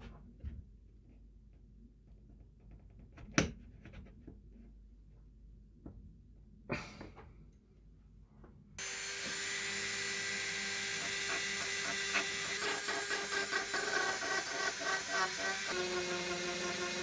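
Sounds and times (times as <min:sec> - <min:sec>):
rotary tool grinding rust off steel: 0:08.8 - 0:17.0.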